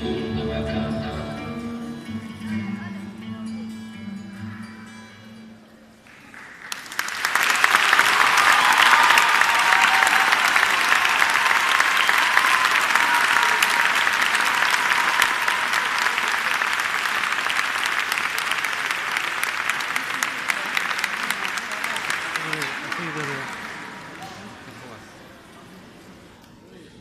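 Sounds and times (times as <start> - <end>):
audience applauding: 6.0 - 25.4.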